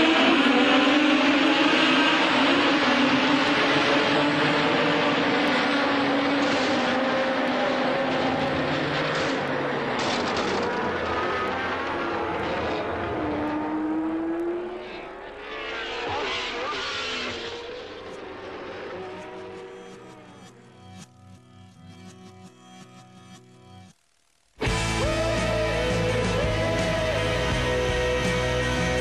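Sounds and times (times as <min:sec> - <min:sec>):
racing car engines at high revs: 0:00.0 - 0:20.6.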